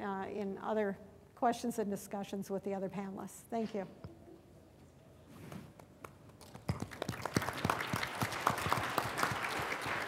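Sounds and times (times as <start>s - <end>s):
audience applause: 6.8s - 10.0s.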